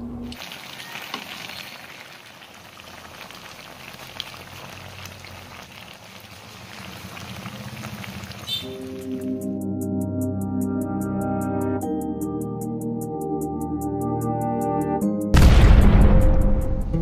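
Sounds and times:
stew simmering in a pan: 0.3 - 9.2.

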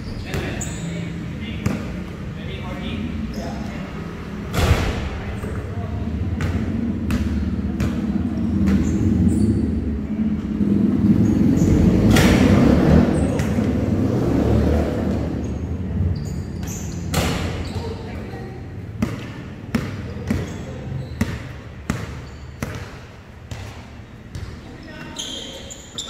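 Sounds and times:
basketball bouncing: 6.2 - 9.1, 13.2 - 13.7, 18.9 - 24.7.

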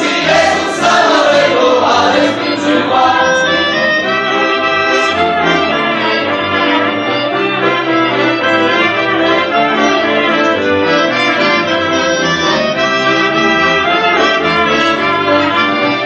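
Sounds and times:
clarinet: 0.0 - 16.0
folk band playing a carol: 0.0 - 16.0
trumpet: 0.0 - 16.0
violin: 0.0 - 16.0.

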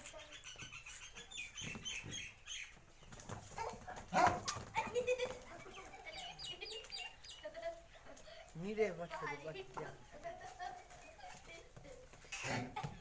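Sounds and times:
small birds chirping: 0.0 - 13.0
animal noise: 12.2 - 13.0.

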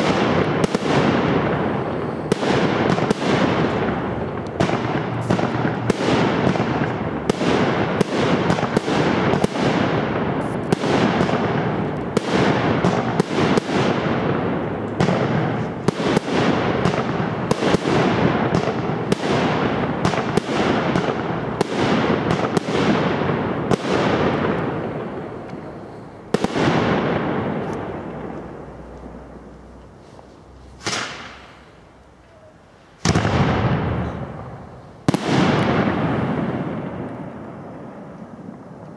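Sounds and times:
firework shell bangs: 30.8 - 31.7.

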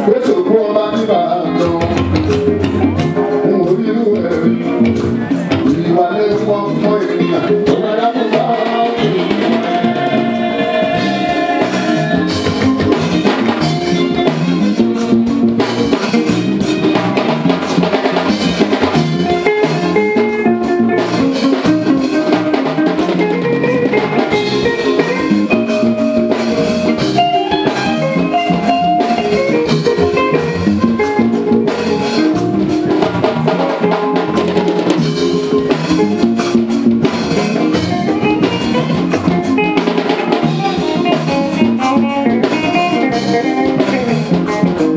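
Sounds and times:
person singing: 0.0 - 12.9
bass guitar: 0.0 - 44.9
drum kit and percussion: 0.0 - 44.9.

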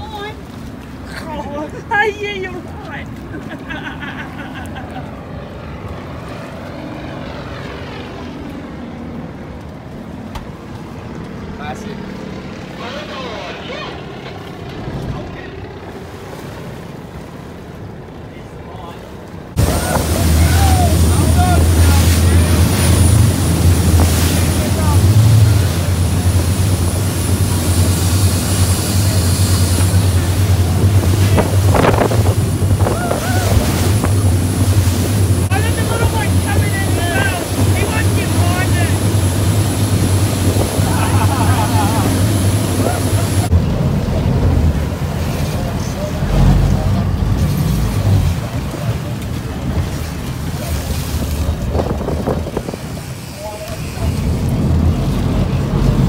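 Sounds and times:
boat engines droning: 0.0 - 56.0
low steady rumble: 0.0 - 56.0
propeller aircraft flyover: 0.0 - 56.0
wake water rushing: 0.0 - 56.0
wind buffeting microphone: 19.5 - 56.0
spray splashing: 19.6 - 43.5.

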